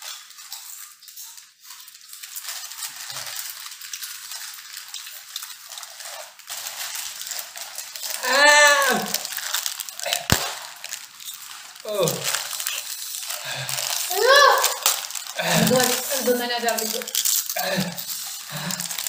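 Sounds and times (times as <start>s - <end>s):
chips crunching: 0.0s - 19.0s
foil chip packets crinkling: 0.0s - 19.0s
person vocalizing: 8.1s - 9.3s, 10.0s - 10.5s, 11.8s - 12.8s, 13.4s - 19.0s.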